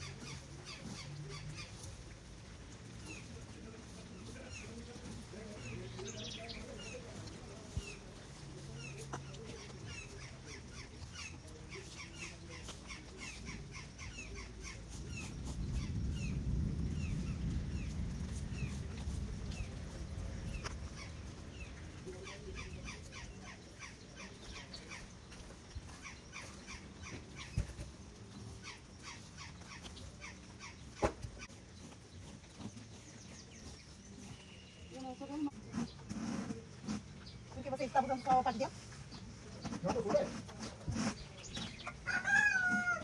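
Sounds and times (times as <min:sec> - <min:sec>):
birds chirping: 0:00.0 - 0:43.0
low rumble: 0:15.6 - 0:22.0.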